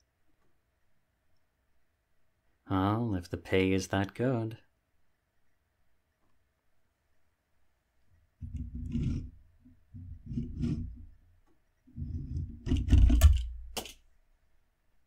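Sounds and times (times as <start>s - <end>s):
toy plane scraping on wooden desk: 8.4s - 11.2s, 11.9s - 13.1s.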